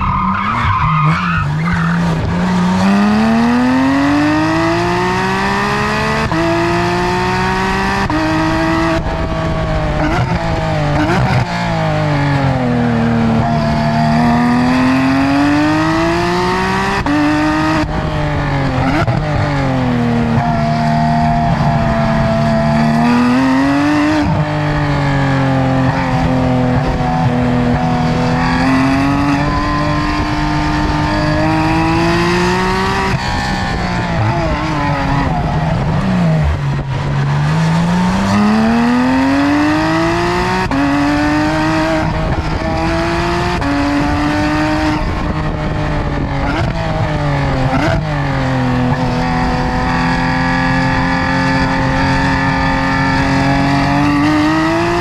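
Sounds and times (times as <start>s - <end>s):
car engine revving hard: 0.0s - 55.0s.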